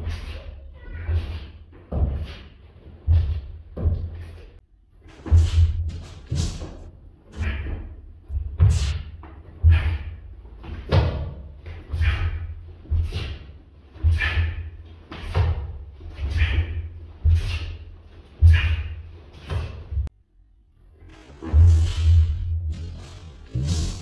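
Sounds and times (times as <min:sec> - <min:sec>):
kicks slapping and thudding: 0:05.1 - 0:20.1, 0:21.3 - 0:24.0.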